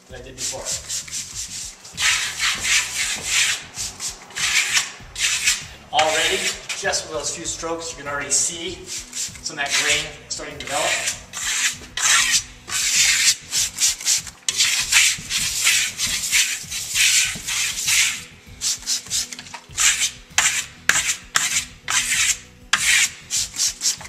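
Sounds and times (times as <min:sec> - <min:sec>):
steel trowel scraping plaster: 0:00.0 - 0:24.0.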